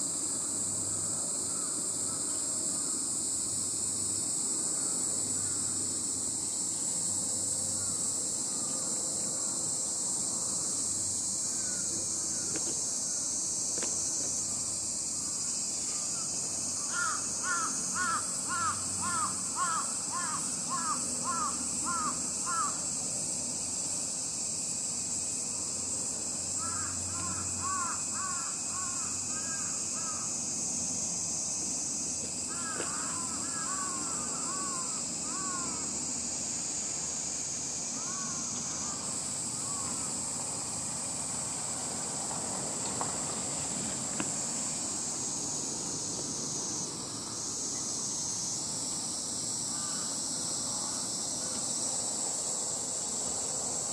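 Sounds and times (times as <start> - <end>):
steady high hiss: 0.0 - 53.9
crow cawing: 16.2 - 22.8, 26.6 - 30.3, 32.5 - 35.8, 38.0 - 39.0, 49.7 - 50.1.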